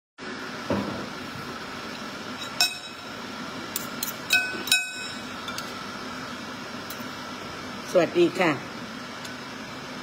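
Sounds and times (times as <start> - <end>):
steady background hum: 0.2 - 10.0
spoon clinking against bowl: 2.5 - 3.0, 4.0 - 5.7.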